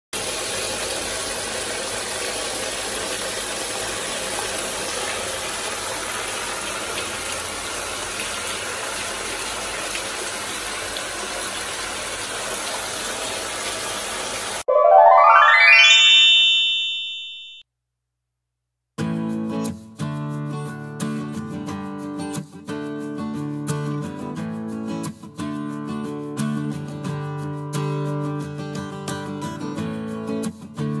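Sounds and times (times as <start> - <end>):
bath tap running into tub: 0.2 - 14.6
rising synth chime: 14.7 - 17.6.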